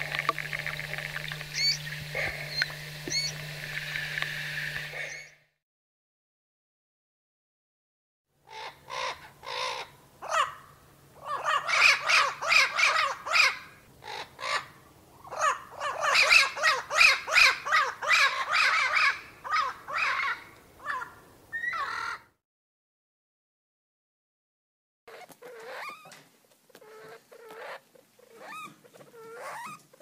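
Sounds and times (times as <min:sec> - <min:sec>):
parrot calling: 0:01.2 - 0:03.5, 0:04.9 - 0:05.4, 0:08.5 - 0:22.4, 0:25.1 - 0:30.0.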